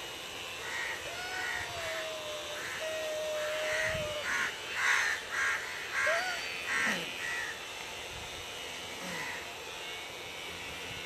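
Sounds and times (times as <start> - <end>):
electric hair clippers humming: 0.0 - 11.0
crows cawing: 0.6 - 7.6, 9.0 - 9.5.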